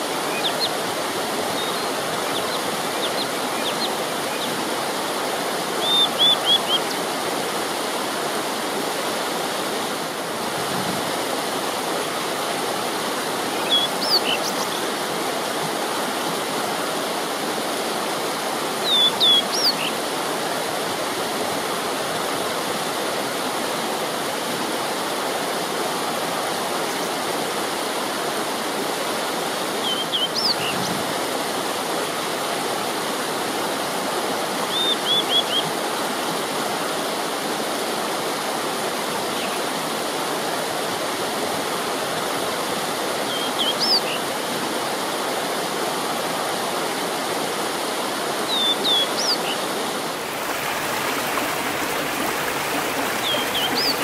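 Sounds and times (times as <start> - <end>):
stream rushing over rocks: 0.0 - 54.0
high bird chirps: 53.2 - 54.0.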